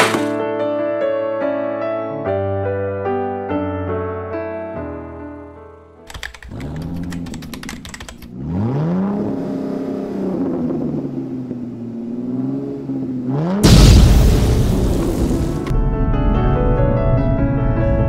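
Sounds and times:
vehicle engine revving: 6.4 - 15.7.

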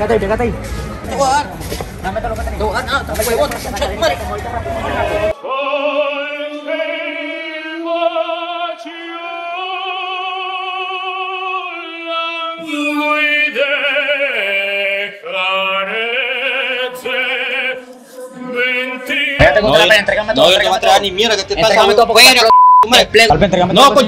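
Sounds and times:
man singing unaccompanied: 5.3 - 21.0.

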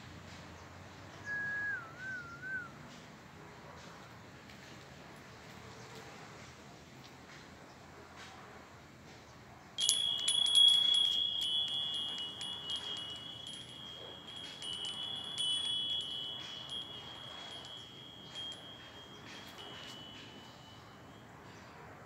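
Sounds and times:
metal wind chime ringing: 9.8 - 21.6.

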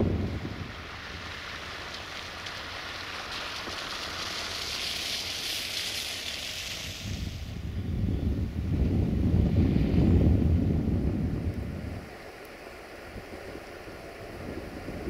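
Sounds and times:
wind rumble on microphone: 0.0 - 15.0
wind rushing: 6.8 - 12.2.

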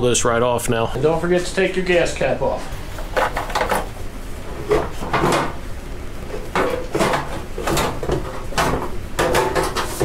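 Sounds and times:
plastic panel knocking and rattling: 6.5 - 10.0.

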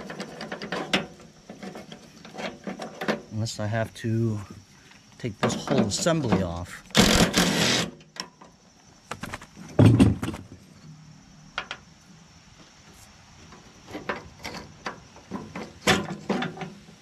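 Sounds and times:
impact driver hammering: 7.0 - 7.8.

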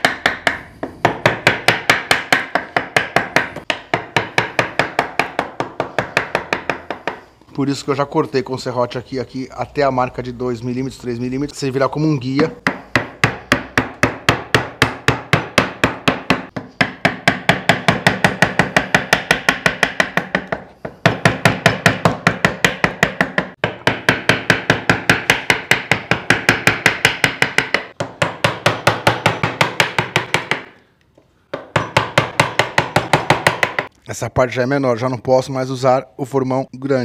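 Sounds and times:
chisel struck by mallet: 0.0 - 7.2, 12.6 - 30.8, 31.5 - 33.9.

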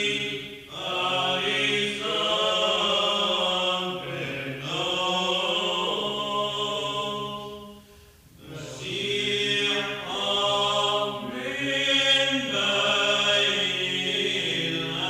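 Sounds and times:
chanting of a hymn: 0.0 - 15.0.

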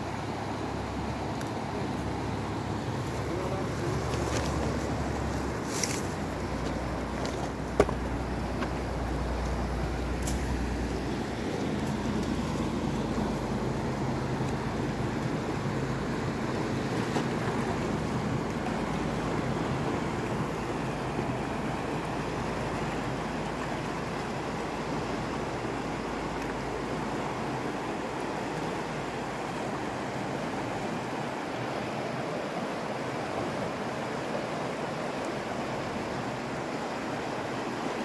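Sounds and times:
river rushing over rocks: 0.0 - 38.0.

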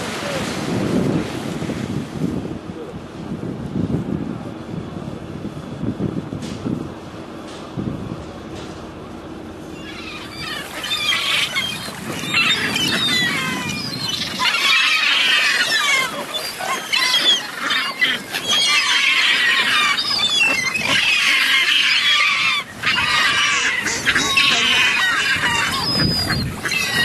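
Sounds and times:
gulls and swans calling: 9.6 - 27.0.

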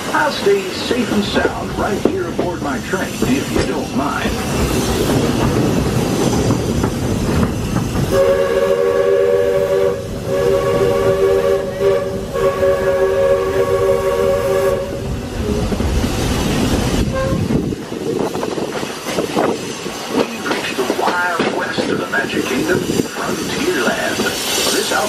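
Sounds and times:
train clattering on rails: 0.0 - 12.8, 15.0 - 25.0
steam locomotive chime whistle: 8.1 - 15.0.

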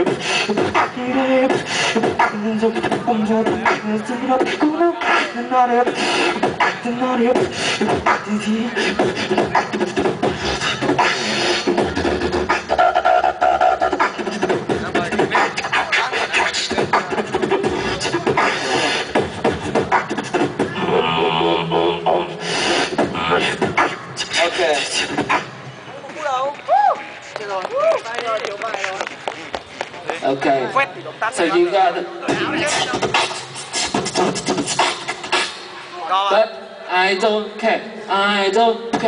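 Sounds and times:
beatboxing into microphone: 0.0 - 25.7, 32.0 - 35.9, 38.1 - 39.0.

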